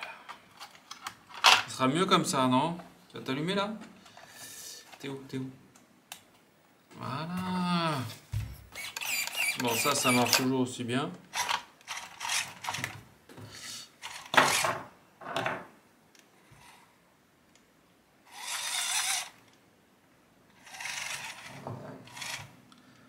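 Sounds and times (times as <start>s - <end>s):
toy electric motor whirring: 8.8s - 10.5s, 11.4s - 12.8s, 14.0s - 14.7s, 18.3s - 19.4s, 20.6s - 22.6s.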